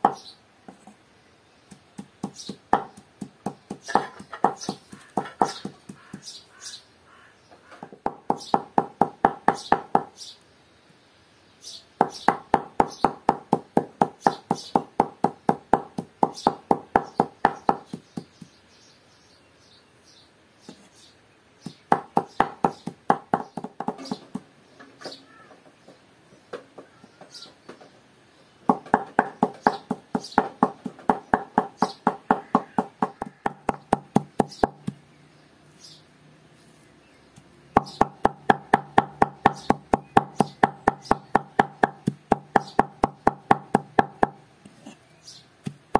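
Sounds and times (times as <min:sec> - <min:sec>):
cleaver chopping on wooden board: 0:01.7 - 0:06.3, 0:21.7 - 0:24.4, 0:28.7 - 0:35.0, 0:37.8 - 0:44.4, 0:45.6 - 0:45.8.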